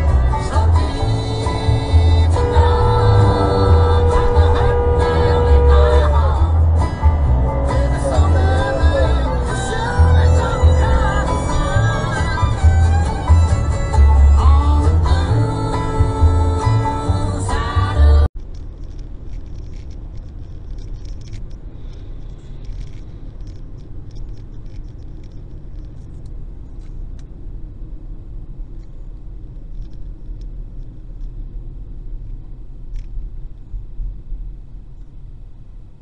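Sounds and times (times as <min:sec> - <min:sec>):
car road and engine noise: 0:00.0 - 0:36.0.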